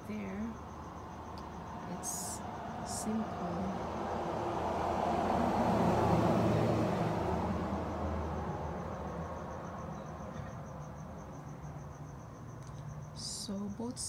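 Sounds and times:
crickets chirping: 0.0s - 14.0s
vehicle passing by: 1.0s - 12.1s.

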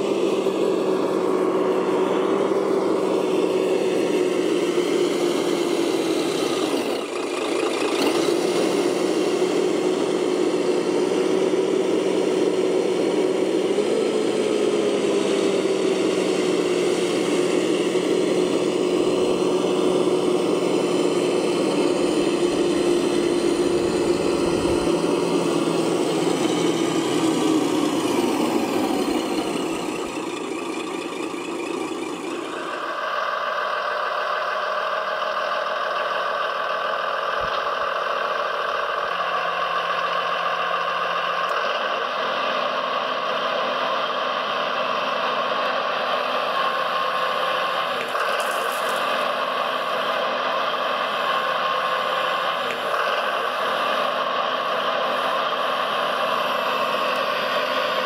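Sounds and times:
model machinery motors humming: 0.0s - 33.0s, 46.1s - 58.0s.

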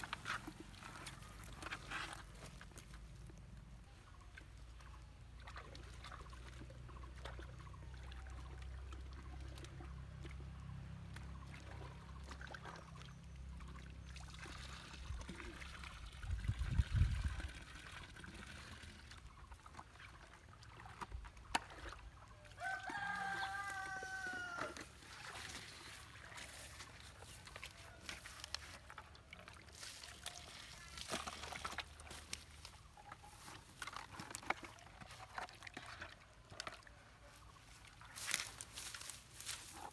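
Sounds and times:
rooster crowing: 22.5s - 24.9s.

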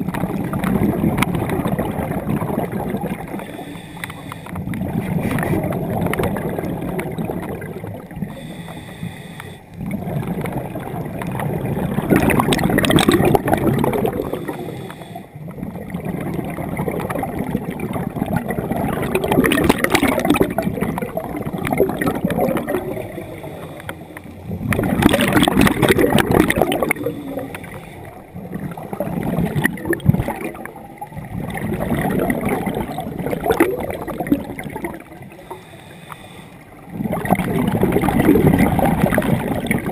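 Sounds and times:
underwater bubbles gurgling: 0.0s - 39.9s.

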